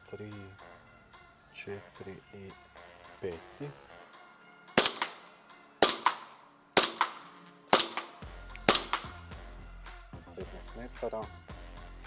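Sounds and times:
airsoft pistol shots: 4.8 - 9.2.

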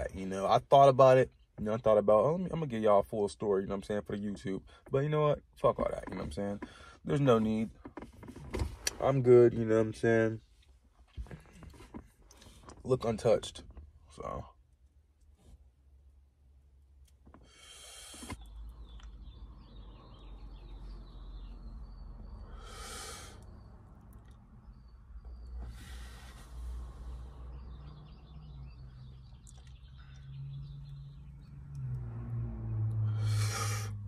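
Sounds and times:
person inhaling and exhaling smoke: 17.4 - 18.5, 22.5 - 23.6, 33.0 - 34.0
faint bird chirps: 18.4 - 31.7.

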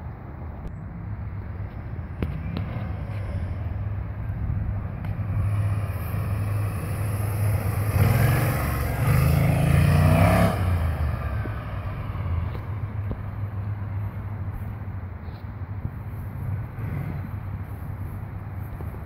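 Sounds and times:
scooter engine passing by: 5.2 - 12.9.

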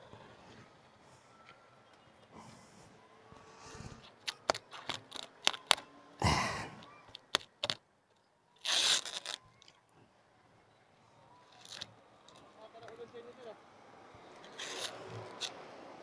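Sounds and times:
plastic wrapping crinkling and tearing: 4.2 - 5.8, 8.6 - 9.8, 11.5 - 11.9.

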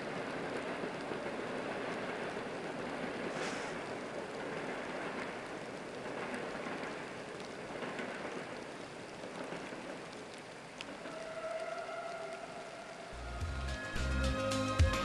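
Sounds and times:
steady rushing noise: 0.0 - 11.1.

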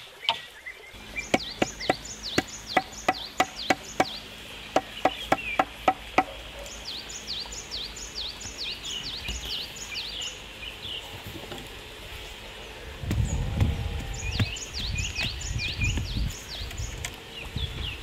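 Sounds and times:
bird chirping: 0.0 - 11.2, 12.5 - 18.0
hammer knocking on bamboo pole: 1.3 - 6.3.

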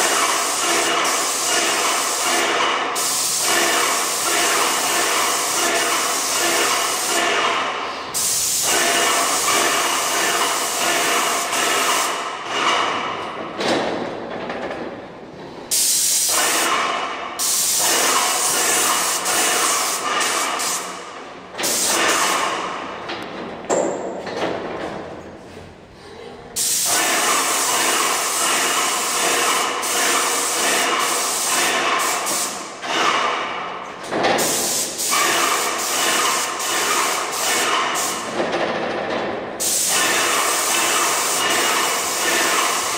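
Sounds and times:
paint sprayer hissing: 0.0 - 12.3, 15.7 - 22.8, 26.6 - 32.9, 34.4 - 38.3, 39.6 - 42.9.

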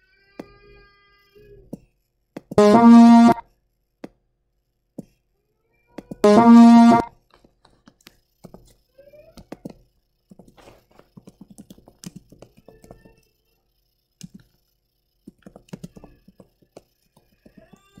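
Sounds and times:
brass-like cartoon honks: 2.6 - 3.4, 6.2 - 7.1.

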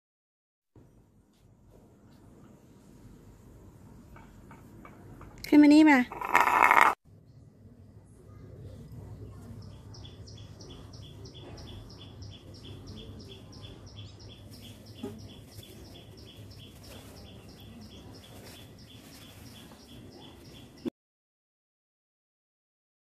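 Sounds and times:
bird chirping: 9.3 - 20.9.

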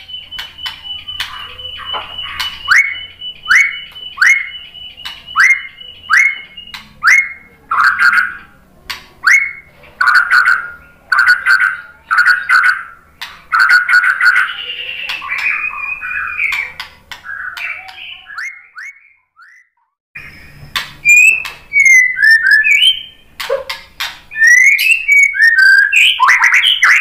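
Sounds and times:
bird chattering notes: 0.0 - 19.6, 20.2 - 27.0
bird whistles with clicks: 0.1 - 8.2, 13.6 - 23.7, 24.3 - 27.0.

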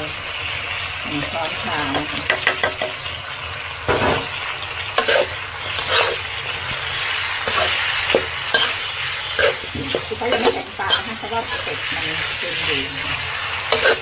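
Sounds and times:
meat sizzling in a pan: 0.0 - 14.0
spatula scraping a pan: 5.0 - 14.0.

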